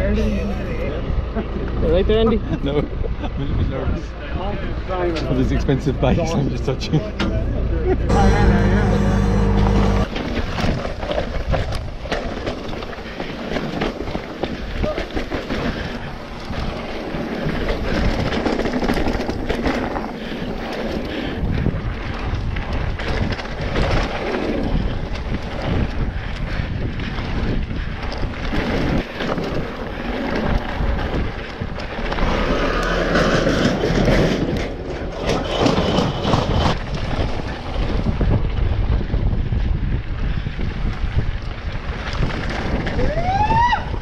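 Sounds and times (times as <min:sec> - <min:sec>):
tyres rumbling on dirt: 0:06.2 - 0:38.9
bike knocking and rattling: 0:09.6 - 0:44.0
wind buffeting microphone: 0:13.8 - 0:44.0.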